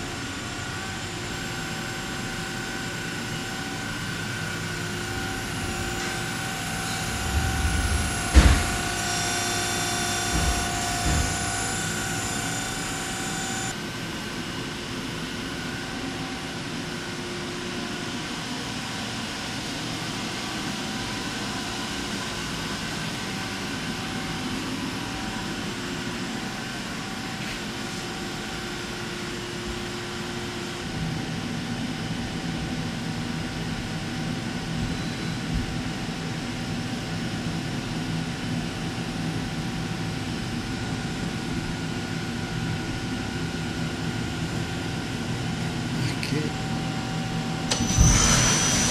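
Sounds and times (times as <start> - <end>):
lathe humming and whining: 0.0 - 48.9.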